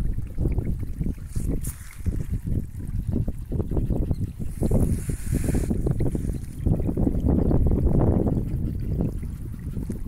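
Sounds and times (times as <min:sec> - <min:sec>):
rainwater trickling: 0:00.0 - 0:10.0
wind buffeting microphone: 0:00.0 - 0:10.0.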